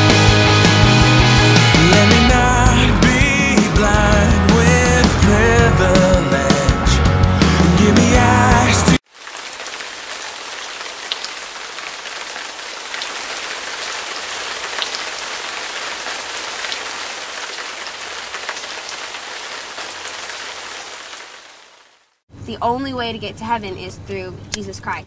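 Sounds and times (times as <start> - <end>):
music: 0.0 - 9.0.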